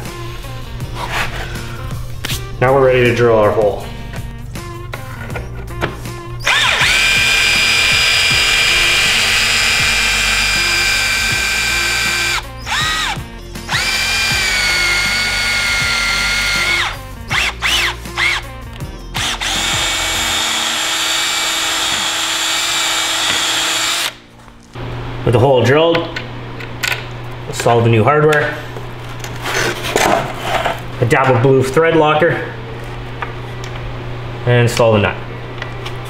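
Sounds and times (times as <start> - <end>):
cordless drill whining: 6.4 - 18.4, 19.2 - 24.2.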